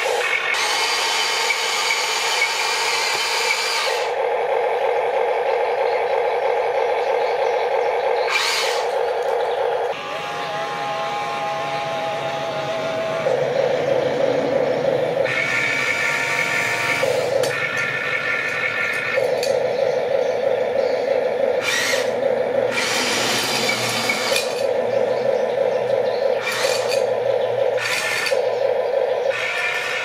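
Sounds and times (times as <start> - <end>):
toy excavator motors whirring: 0.0 - 30.0
short rasping bursts: 8.3 - 9.0.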